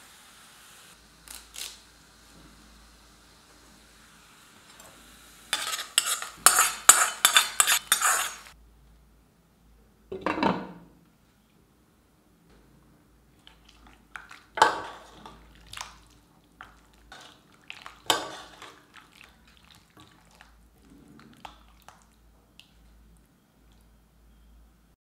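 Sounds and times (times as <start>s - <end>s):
metal spoon scraping a wok: 5.5s - 8.6s.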